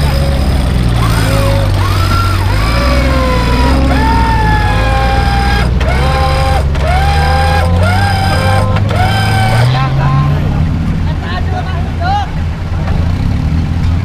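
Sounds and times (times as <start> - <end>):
winch motor whining: 0.0 - 9.9
vehicle engine running: 0.0 - 14.0.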